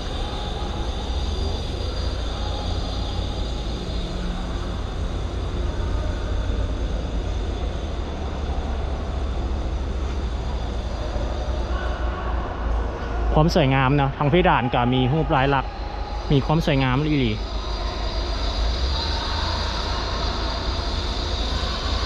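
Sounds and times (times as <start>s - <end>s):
low rumble: 0.0s - 14.6s
hiss: 15.8s - 22.0s.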